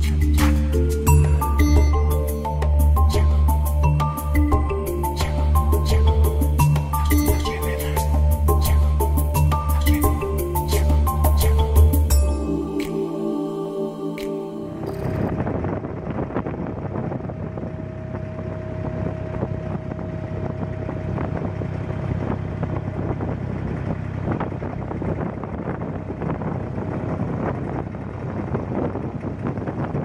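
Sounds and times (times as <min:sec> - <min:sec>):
boat engine humming: 0:00.0 - 0:30.0
wind buffeting microphone: 0:14.9 - 0:30.0.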